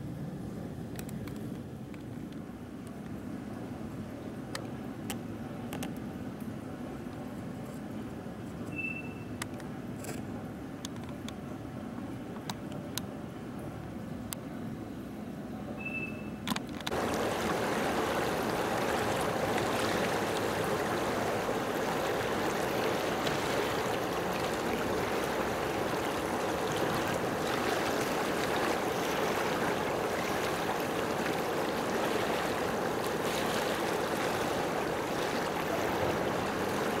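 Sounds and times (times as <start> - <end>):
rushing water: 16.8 - 37.0.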